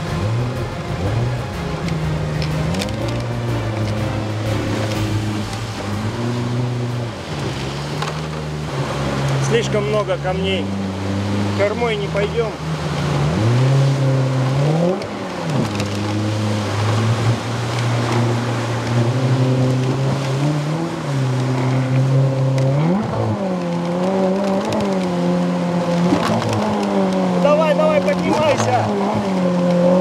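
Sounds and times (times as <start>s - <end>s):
outboard motor running: 0.0s - 30.0s
water rushing: 0.0s - 30.0s.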